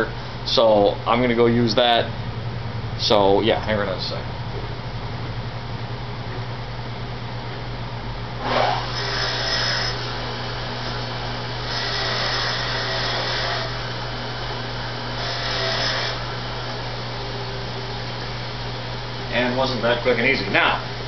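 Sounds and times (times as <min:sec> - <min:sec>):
grinder motor starting: 0:08.4 - 0:16.9
wire wheel scrubbing metal: 0:08.4 - 0:16.9.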